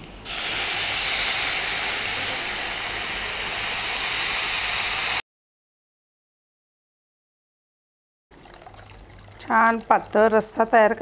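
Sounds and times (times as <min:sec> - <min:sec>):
water hissing in a hot pan: 0:00.2 - 0:05.2, 0:08.4 - 0:11.0.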